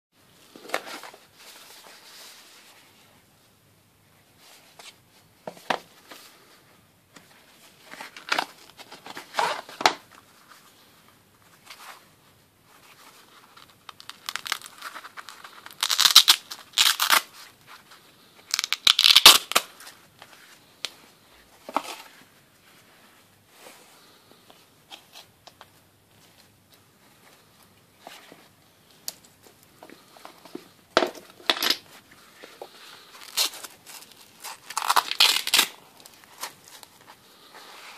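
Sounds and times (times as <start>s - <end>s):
hook-and-loop strap ripping open: 13.9s - 17.3s, 18.5s - 19.7s, 34.4s - 35.8s.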